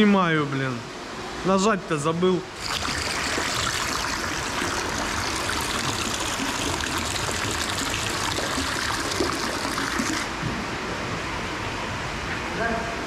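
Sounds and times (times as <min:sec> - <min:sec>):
water pouring into tank: 0:02.6 - 0:10.4.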